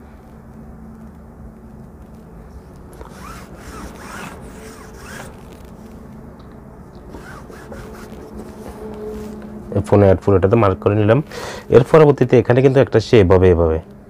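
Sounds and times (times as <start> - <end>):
faint steady hum: 0.0 - 14.0
chalk scratching on cloth: 3.0 - 5.6, 7.1 - 9.4.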